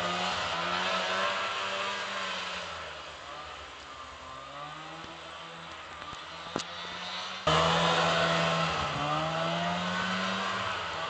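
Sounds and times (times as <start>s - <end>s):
snowmobile engine running: 0.0s - 11.0s.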